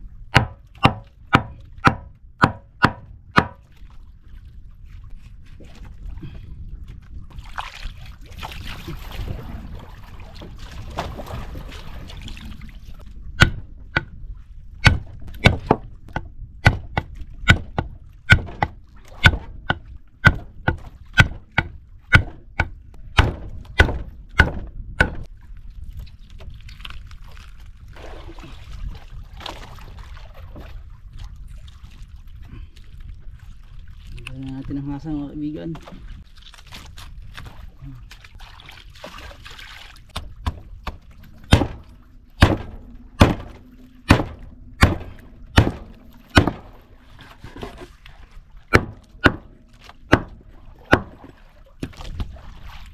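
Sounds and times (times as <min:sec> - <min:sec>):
knife chopping fish on wooden board: 0:00.4 - 0:03.6, 0:16.6 - 0:18.7, 0:20.3 - 0:25.2.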